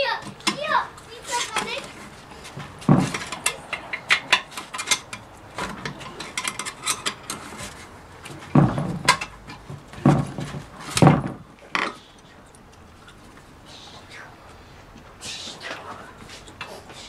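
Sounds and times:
heavier metal knocks: 1.4 - 11.8
metal parts clinking: 2.9 - 7.9.

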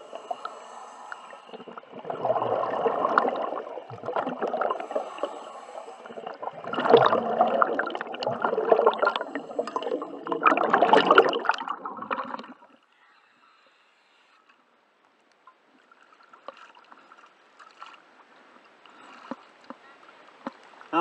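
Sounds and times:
air bubbling underwater: 1.6 - 5.2, 5.8 - 12.7.

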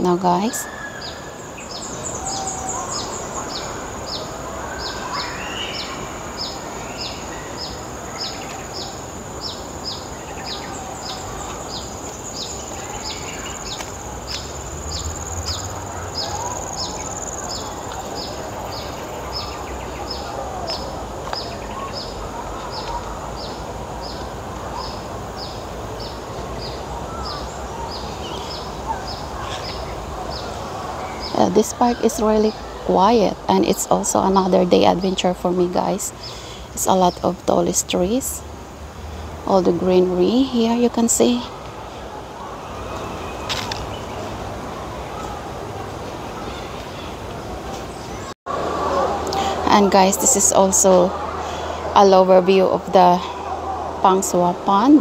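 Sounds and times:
bird chirping: 0.0 - 38.4
high insect hum: 0.0 - 44.6.

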